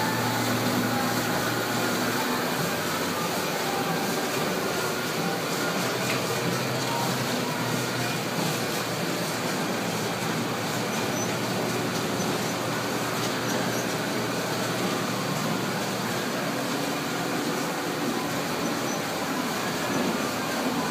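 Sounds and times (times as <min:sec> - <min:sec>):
machinery running: 0:00.0 - 0:20.9.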